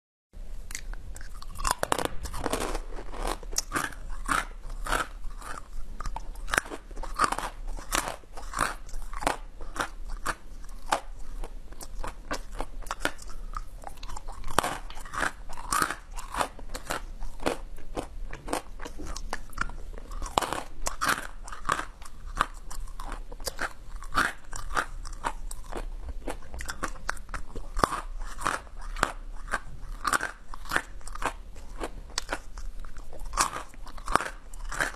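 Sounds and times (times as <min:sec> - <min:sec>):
crunching and chewing candy: 0:00.6 - 0:34.9.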